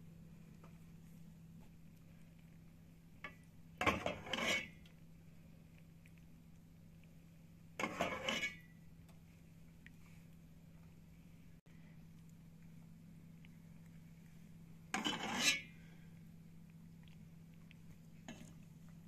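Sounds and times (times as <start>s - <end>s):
low hum: 8.6s - 15.0s.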